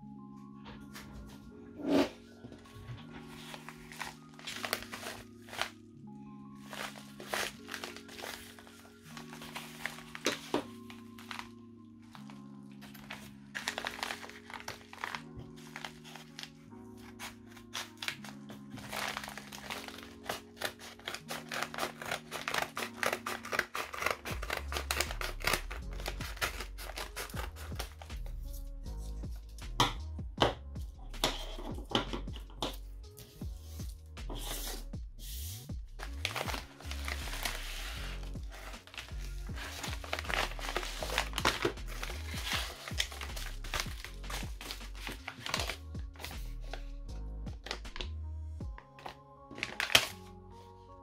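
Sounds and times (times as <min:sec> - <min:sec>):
background music with deep bass: 0:00.0 - 0:51.0
paper crinkling: 0:02.9 - 0:05.8, 0:06.6 - 0:28.2, 0:36.0 - 0:46.5, 0:49.0 - 0:50.2
scissors snipping paper: 0:12.9 - 0:28.1, 0:36.0 - 0:45.8
background music with bass line: 0:24.3 - 0:48.9.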